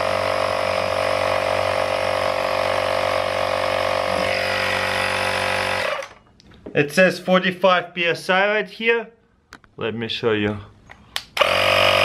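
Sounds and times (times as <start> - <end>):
air compressor motor drone: 0.0 - 6.2, 11.4 - 12.0.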